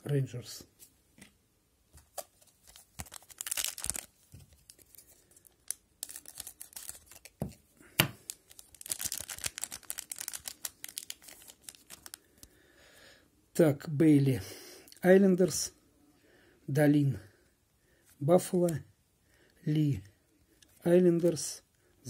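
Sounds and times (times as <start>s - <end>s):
wrapper crinkling and tearing: 2.1s - 12.5s.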